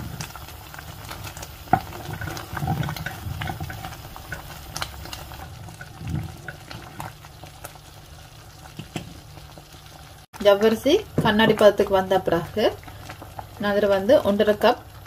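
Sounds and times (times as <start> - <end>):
wooden spoon stirring: 0.0 - 7.5
pan bubbling at the boil: 0.0 - 15.0.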